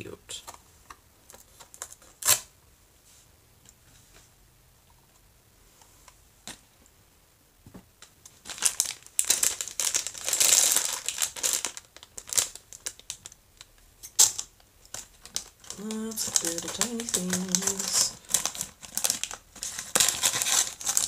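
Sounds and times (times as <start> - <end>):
plastic packaging crinkling: 1.3 - 2.5, 8.3 - 21.0.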